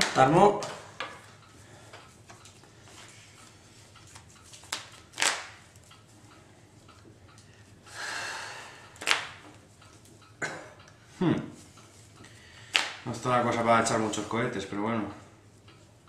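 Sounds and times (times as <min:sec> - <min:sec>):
breathy hiss: 0:07.8 - 0:09.0.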